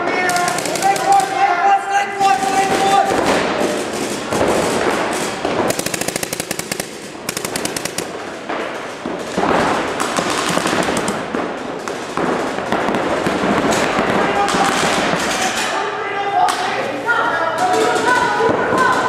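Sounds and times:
paintball markers firing: 0.1s - 1.4s, 2.2s - 15.3s.

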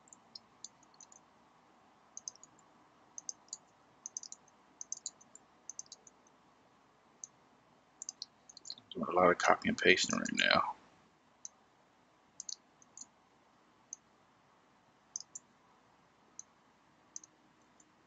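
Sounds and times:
keyboard and mouse clicks: 0.0s - 1.2s, 2.2s - 6.2s, 8.0s - 8.8s, 12.4s - 13.1s, 15.1s - 15.4s, 17.2s - 17.9s.

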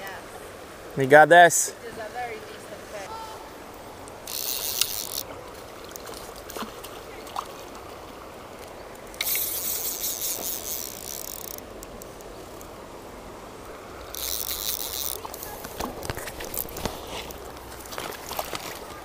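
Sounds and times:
river water running: 0.0s - 19.0s
fishing reel ratchet buzzing: 4.2s - 5.3s, 9.2s - 11.6s, 14.1s - 15.5s.

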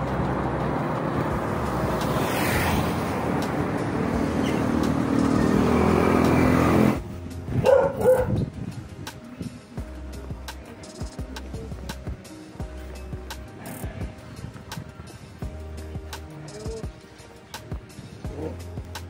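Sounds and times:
vehicle engine running: 0.0s - 9.0s
dog barking: 7.6s - 8.4s.

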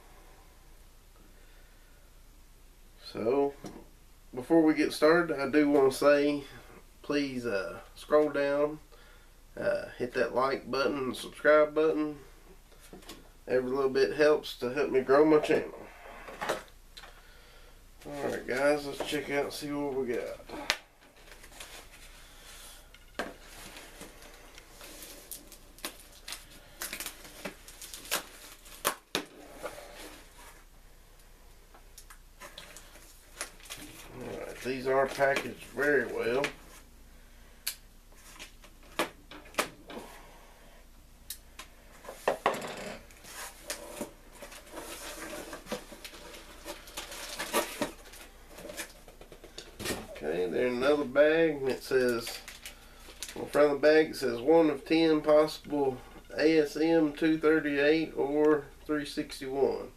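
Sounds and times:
cardboard crackling and rustling: 23.2s - 30.7s, 43.2s - 50.3s.

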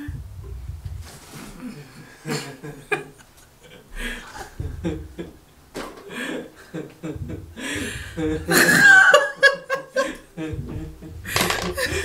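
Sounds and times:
woman chuckling and giggling: 6.1s - 12.0s.

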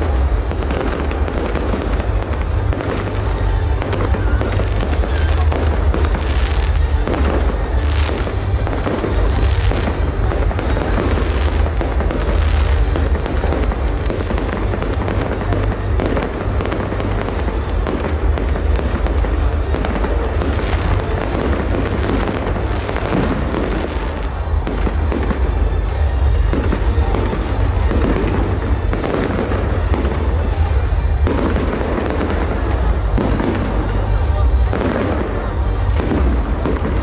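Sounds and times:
fireworks bursting and crackling: 0.0s - 37.0s
music playing: 0.0s - 37.0s.

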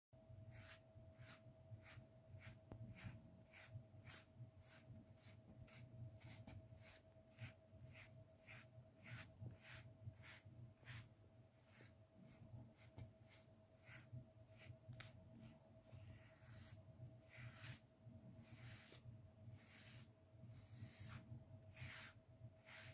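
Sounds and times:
brush scratching through fur: 0.4s - 22.9s.

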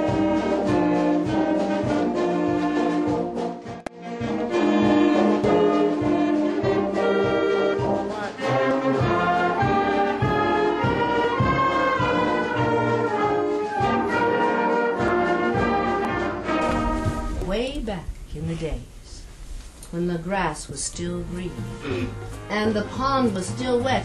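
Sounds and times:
brass instruments playing: 0.0s - 17.4s, 21.0s - 24.0s.

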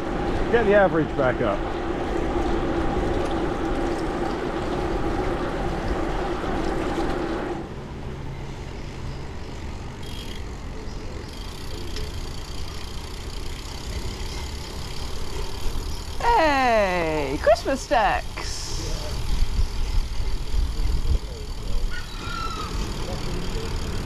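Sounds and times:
bicycle tyre noise: 0.0s - 7.7s, 8.8s - 17.4s, 18.4s - 24.0s
bike rolling over wet paving: 0.1s - 7.6s
steady hum: 11.3s - 21.5s.

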